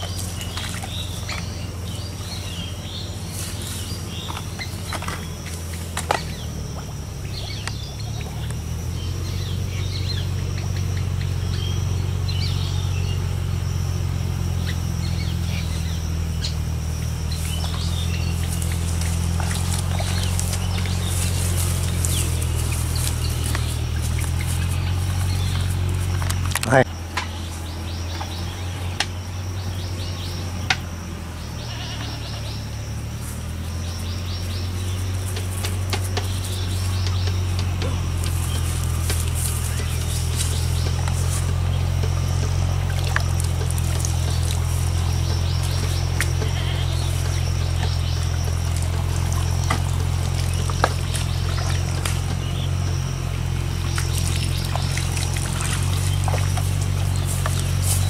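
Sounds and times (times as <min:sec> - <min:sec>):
steady low hum: 0:00.0 - 0:58.0
water pouring and trickling: 0:53.9 - 0:58.0.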